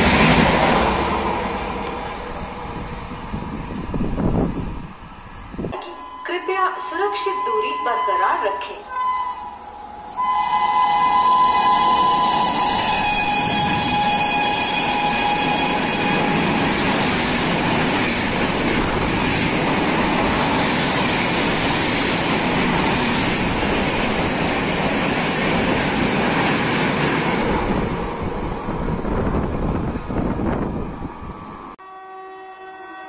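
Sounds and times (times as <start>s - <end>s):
train wheels and coaches rushing: 0.0s - 31.8s
train horn: 5.8s - 17.0s, 31.8s - 33.0s.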